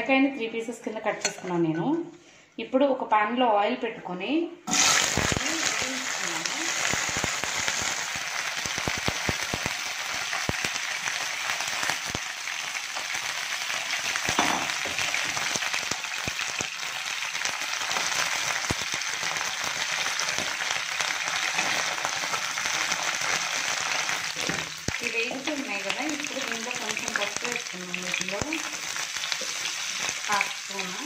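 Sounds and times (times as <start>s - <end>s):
okra sizzling in hot oil: 4.7s - 31.0s.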